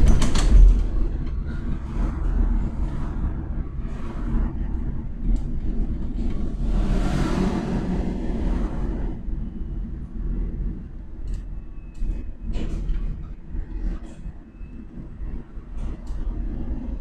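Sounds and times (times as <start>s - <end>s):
light clicks and rattles: 0.0s - 1.4s
bus tyre and body rumble: 0.0s - 17.0s
car rushing past: 6.5s - 9.4s.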